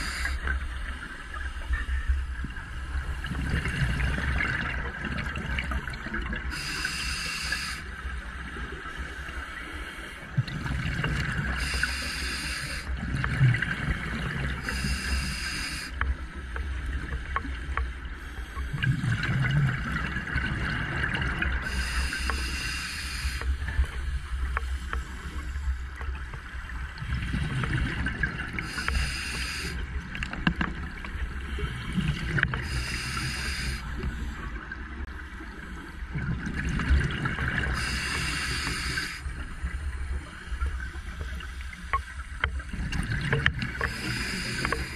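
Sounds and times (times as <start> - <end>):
regulator hiss on inhale: 0.0 - 0.6, 6.5 - 8.3, 11.6 - 13.0, 14.6 - 16.8, 21.6 - 25.9, 28.6 - 29.9, 31.4 - 34.4, 37.8 - 40.3, 43.8 - 44.9.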